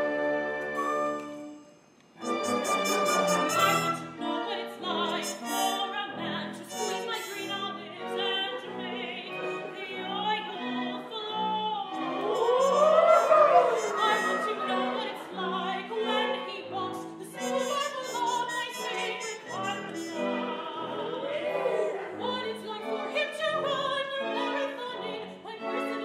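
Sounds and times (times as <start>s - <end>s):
instrumental accompaniment: 0.0s - 8.2s, 17.1s - 21.4s
woman singing operatically: 2.2s - 21.4s, 22.1s - 26.0s.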